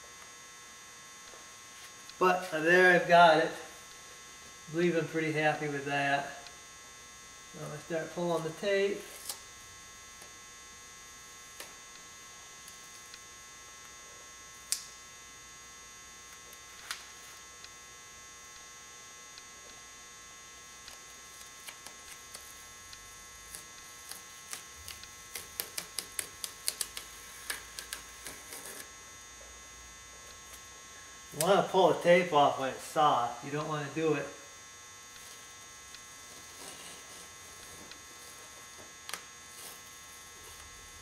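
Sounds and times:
steady electrical hum: 0.0 - 41.0
tape peeling off: 8.3 - 10.4, 20.8 - 29.0.

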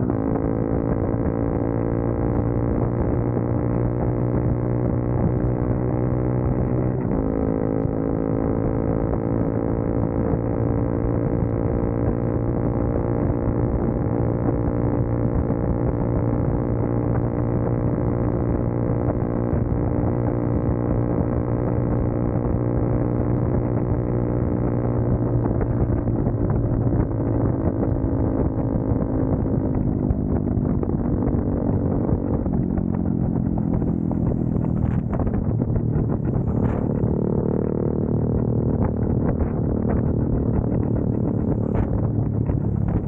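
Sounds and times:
motorcycle engine running: 0.0 - 43.0
wind rush: 29.4 - 43.0.

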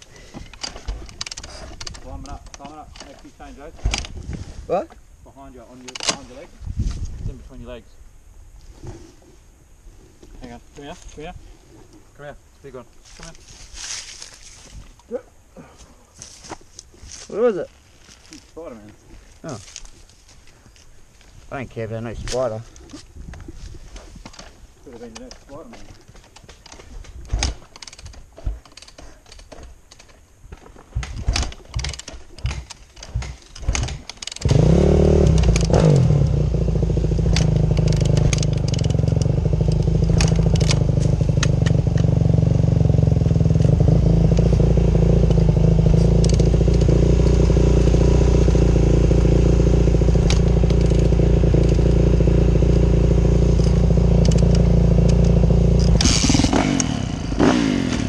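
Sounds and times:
irregular clattering and knocks: 24.0 - 34.6
motorcycle engine starting and idling: 30.9 - 58.0.

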